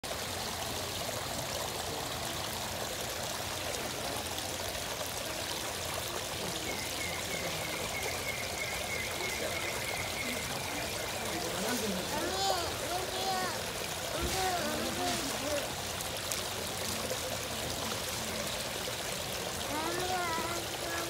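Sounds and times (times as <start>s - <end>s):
waterfall splashing over rocks: 0.0s - 21.0s.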